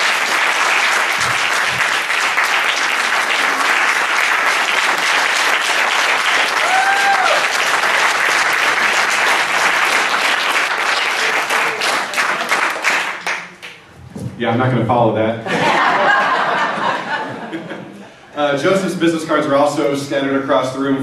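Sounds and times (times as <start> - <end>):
audience applauding: 0.0 - 13.8
person whooping: 6.5 - 7.6.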